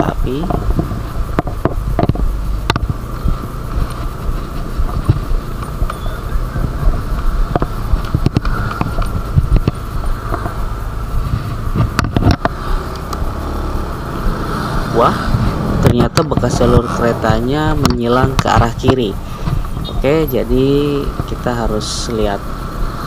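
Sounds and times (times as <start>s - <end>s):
motor scooter engine: 0.0s - 23.0s
scooter knocks and rattles: 0.3s - 10.7s, 11.7s - 12.6s, 15.9s - 20.3s.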